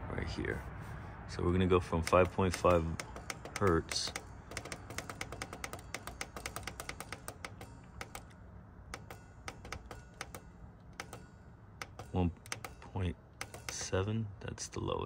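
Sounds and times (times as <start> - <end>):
controller buttons clicking: 2.0 - 14.0.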